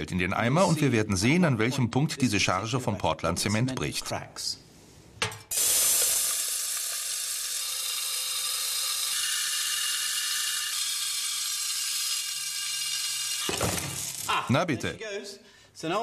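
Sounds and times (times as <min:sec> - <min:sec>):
lead shot pouring into metal bucket: 0:05.5 - 0:14.3.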